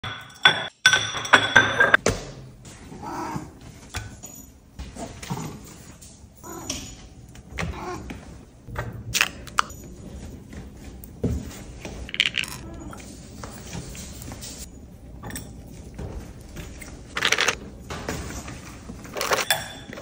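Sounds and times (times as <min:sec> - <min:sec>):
spoon scraping and tapping plates: 0:00.0 - 0:02.0
ceramic plates set down: 0:00.1 - 0:02.0.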